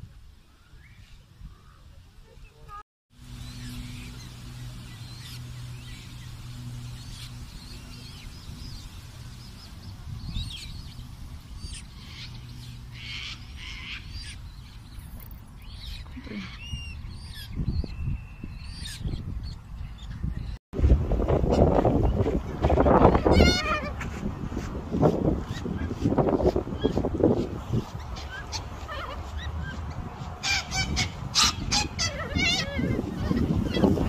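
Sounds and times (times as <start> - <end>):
low steady hum: 3.2 - 18.6
chicks peeping: 25.4 - 34.0.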